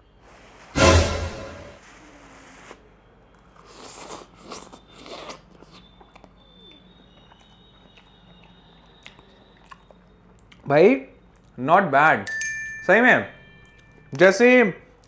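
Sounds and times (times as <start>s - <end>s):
chewing with mouth clicks: 3.3s - 11.6s.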